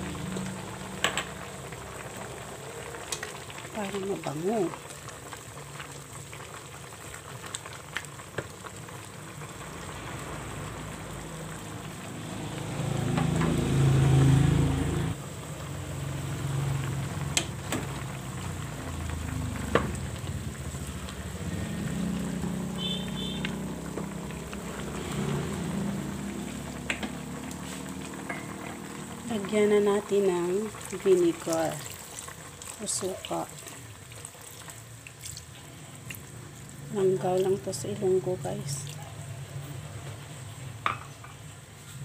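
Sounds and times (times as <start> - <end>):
food simmering and sizzling: 0.0 - 42.0.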